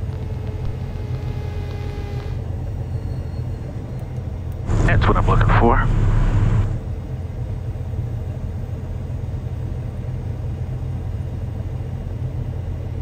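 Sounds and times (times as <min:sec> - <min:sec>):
plane piston engine rumbling: 0:04.7 - 0:06.8.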